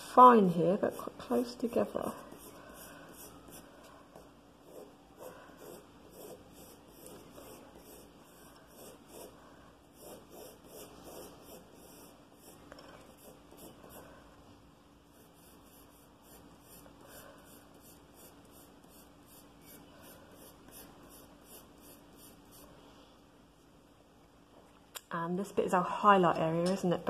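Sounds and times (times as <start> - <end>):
pencil scratching on paper: 0.7 - 14.1, 15.1 - 22.7.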